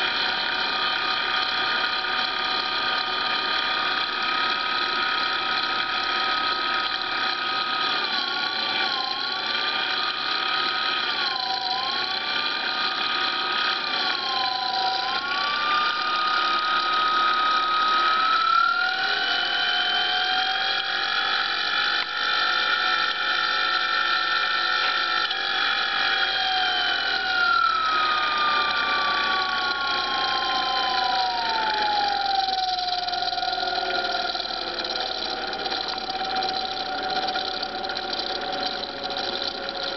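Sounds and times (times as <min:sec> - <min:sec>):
electric motor whine: 0:00.0 - 0:39.9.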